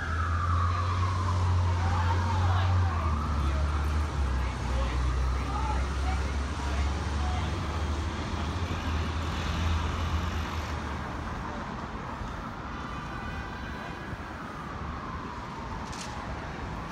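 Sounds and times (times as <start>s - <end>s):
vehicle low rumble: 0.0s - 12.6s.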